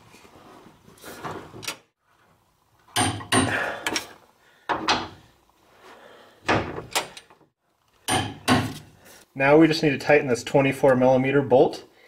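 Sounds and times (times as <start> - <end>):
sharp knocks: 8.1 - 8.8.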